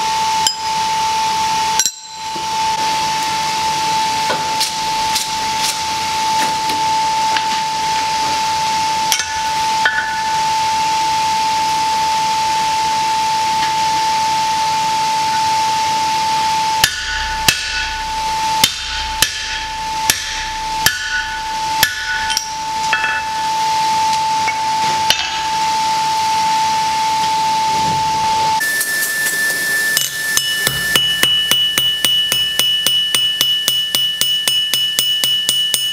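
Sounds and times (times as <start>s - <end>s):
high whine with hiss: 0.0s - 35.6s
hammer striking metal: 1.8s - 2.5s, 9.1s - 10.4s, 16.7s - 23.6s, 24.4s - 25.6s, 28.7s - 35.9s.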